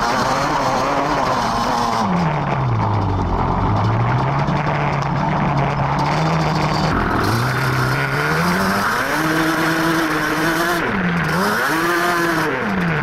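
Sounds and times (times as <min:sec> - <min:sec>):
two-stroke engine revving: 0:00.0 - 0:13.0.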